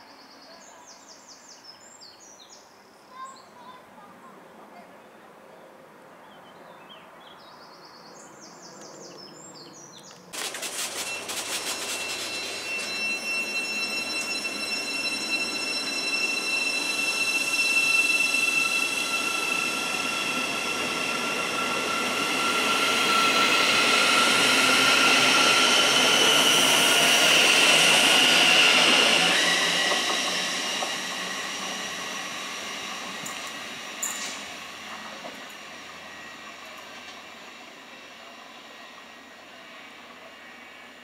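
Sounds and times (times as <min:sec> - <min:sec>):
wheels rumbling on rail: 0:09.8 - 0:41.0
electric train whine: 0:10.2 - 0:41.0.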